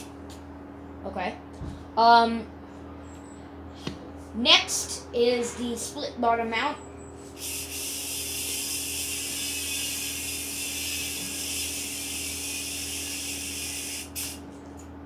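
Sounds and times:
yo-yo spinning whir: 7.3 - 14.4.

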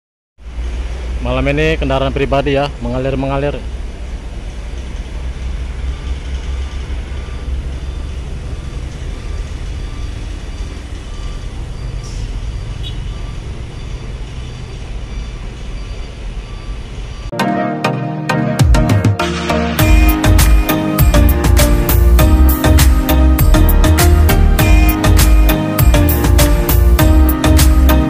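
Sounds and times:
traffic noise: 0.4 - 17.3.

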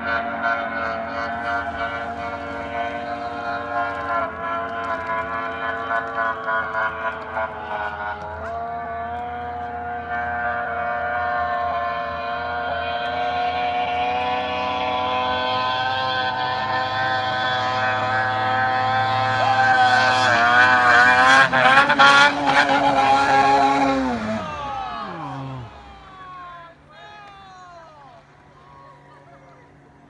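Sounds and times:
snowmobile engine at high revs: 0.0 - 30.0.

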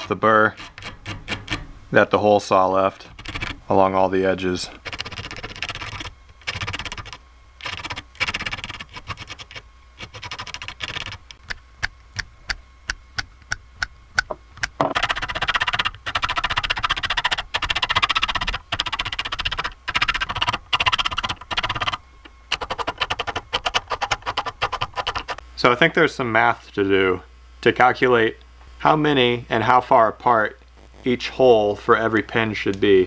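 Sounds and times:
metal file scraping brass: 0.0 - 1.6.

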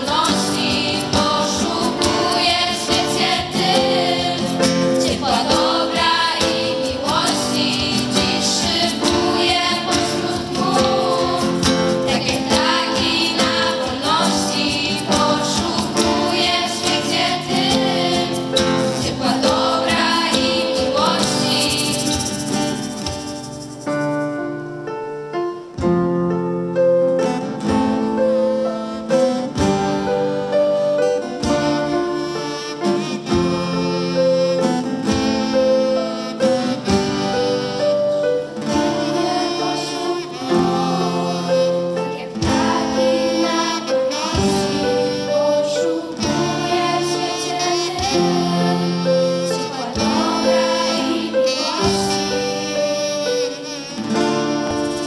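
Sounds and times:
girls singing: 0.0 - 22.5, 38.7 - 55.0
acoustic guitar: 0.0 - 55.0.

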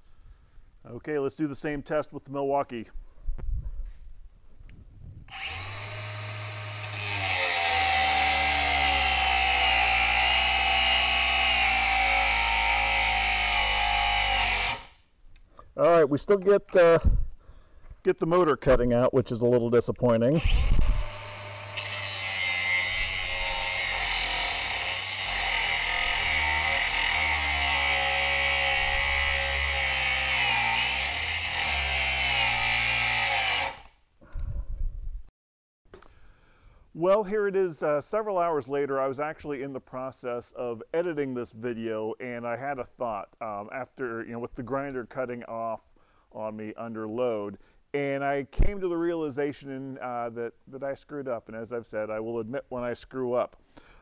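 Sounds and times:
angle grinder motor whine: 5.3 - 14.9, 20.4 - 33.9
abrasive wheel grinding steel: 21.0 - 33.8.

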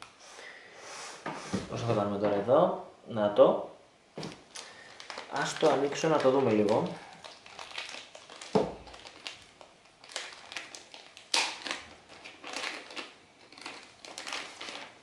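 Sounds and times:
plastic bag crinkling: 4.2 - 15.0.

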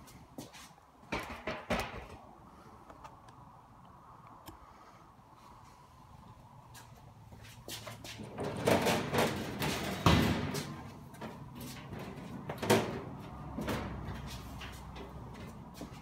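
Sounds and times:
metal door clunking and scraping: 7.8 - 16.0
metal door banging: 8.3 - 14.3.

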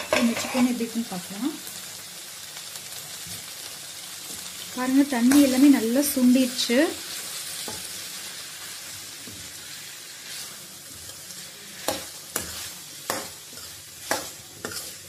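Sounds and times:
spatula scraping a metal pan: 0.0 - 0.8, 9.4 - 15.0
chicken sizzling in a pan: 0.0 - 15.0.

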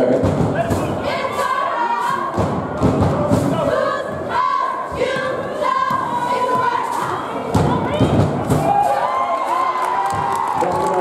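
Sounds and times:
group singing with held notes: 0.0 - 8.1.

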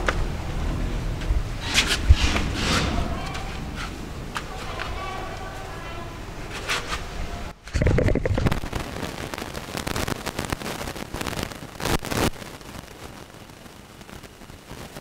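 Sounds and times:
knocks scrapes and rustling: 1.6 - 5.0, 6.4 - 7.1.

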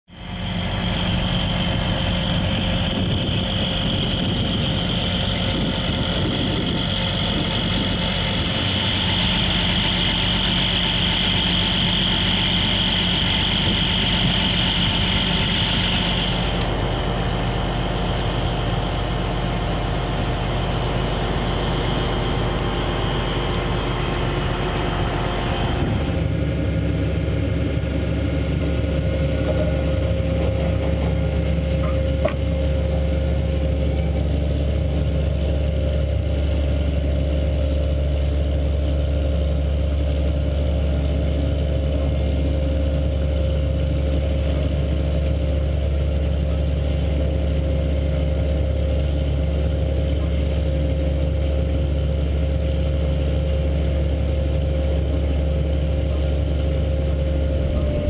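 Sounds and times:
high steady whine: 0.1 - 37.5, 51.9 - 58.0
tractor engine under load: 0.1 - 58.0.

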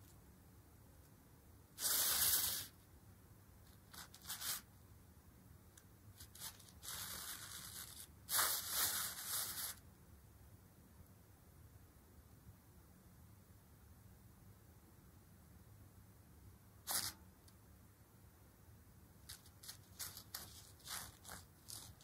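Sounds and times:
synthetic fabric rustling: 6.2 - 9.8, 19.3 - 22.0.

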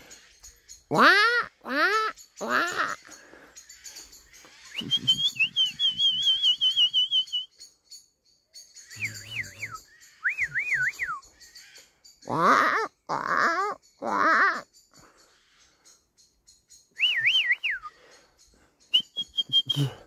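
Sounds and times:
person whistling: 4.8 - 7.5, 9.2 - 11.2, 17.0 - 17.9, 18.9 - 20.0.

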